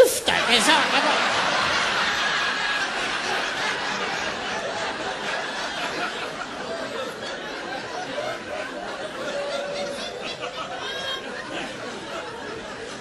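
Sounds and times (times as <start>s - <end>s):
audience laughing: 0.0s - 13.0s.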